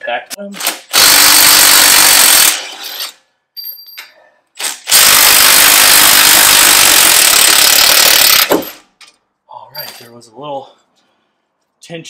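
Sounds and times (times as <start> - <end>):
impact wrench hammering: 4.9 - 8.9.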